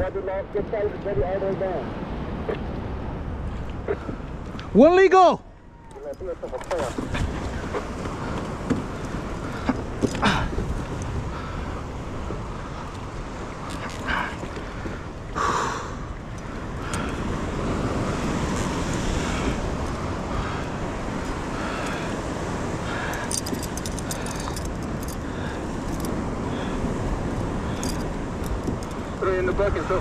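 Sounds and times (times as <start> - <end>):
water moving around kayak: 0.8 - 30.0
wind noise on microphone: 5.6 - 30.0
gear clicks: 23.1 - 25.2, 27.8 - 29.0.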